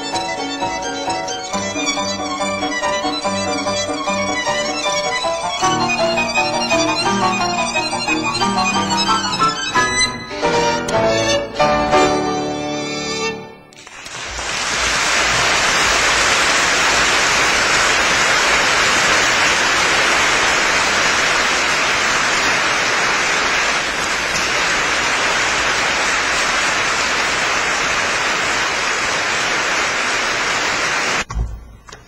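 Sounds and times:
audience applauding: 0:13.8 - 0:31.3.

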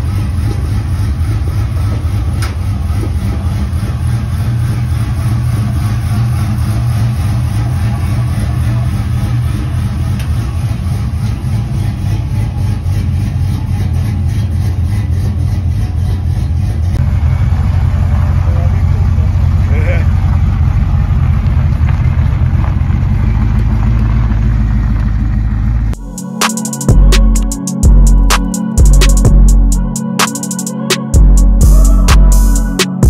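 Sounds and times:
car engine idling: 0:00.0 - 0:30.4.

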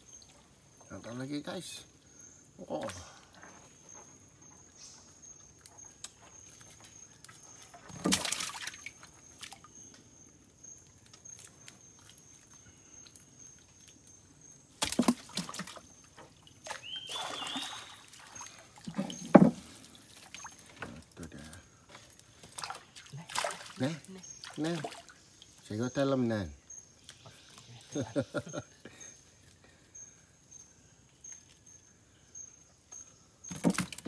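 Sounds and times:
water splashing around boat: 0:14.8 - 0:21.2.

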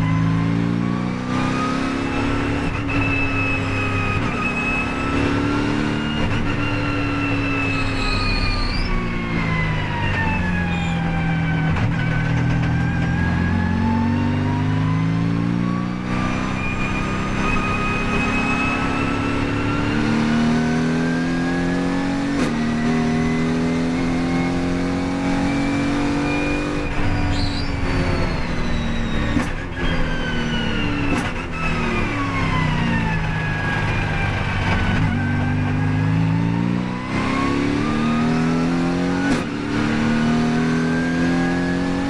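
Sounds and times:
race car engine revving: 0:13.3 - 0:33.1, 0:34.6 - 0:42.0.

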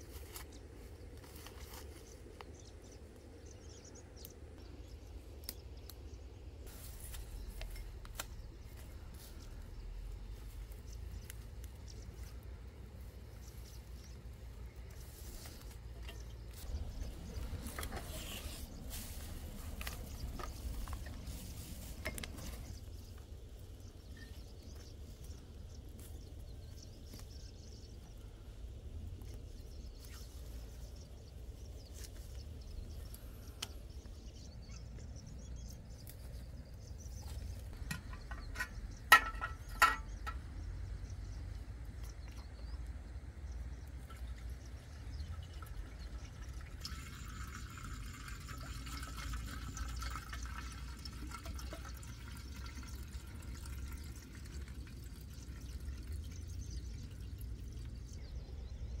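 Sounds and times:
low outdoor rumble: 0:00.0 - 0:59.0
fuel pouring into tank: 0:45.1 - 0:58.0.

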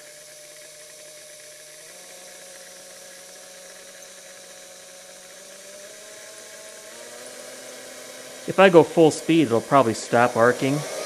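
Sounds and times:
mixer motor humming: 0:00.0 - 0:11.0.

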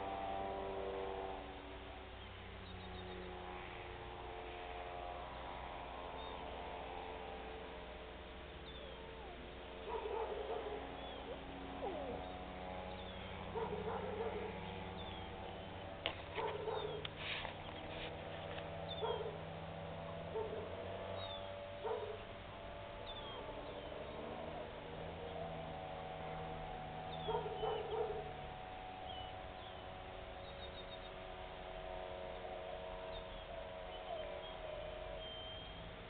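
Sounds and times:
steady engine drone: 0:00.0 - 0:36.0
small birds chirping: 0:02.1 - 0:03.5, 0:08.4 - 0:36.0
dog barking: 0:09.8 - 0:12.2, 0:13.5 - 0:14.6, 0:16.4 - 0:17.0, 0:19.0 - 0:19.4, 0:20.3 - 0:20.8, 0:21.8 - 0:22.2, 0:27.2 - 0:28.3.

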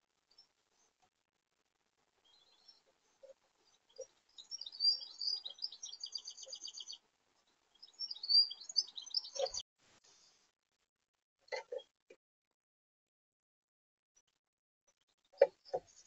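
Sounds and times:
songbird trilling: 0:03.9 - 0:07.0, 0:07.8 - 0:09.6.

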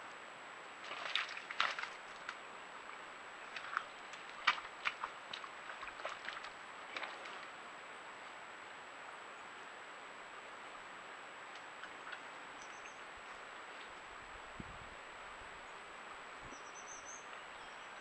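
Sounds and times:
wet squelches in mud: 0:00.8 - 0:07.5
faint high whine: 0:07.6 - 0:18.0.

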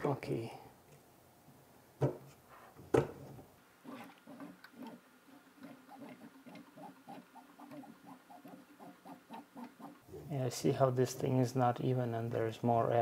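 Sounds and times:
scratchy ticks and squeaks: 0:03.8 - 0:10.0.

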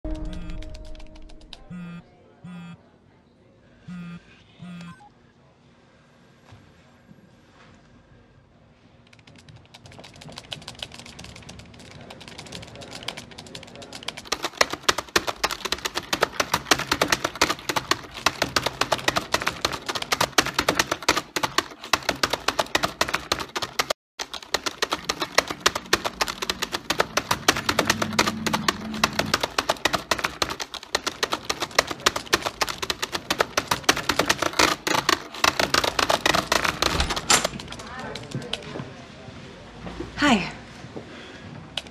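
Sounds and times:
keyboard keys clattering: 0:09.3 - 0:38.6.

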